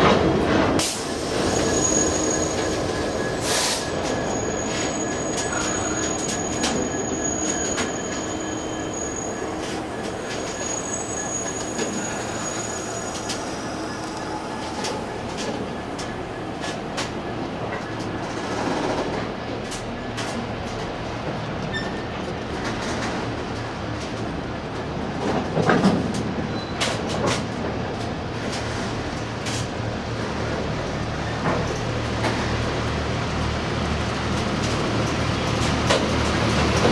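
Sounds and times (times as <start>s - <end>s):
train wagons rumbling past: 0.0s - 36.9s
high metallic squeal: 1.3s - 16.7s.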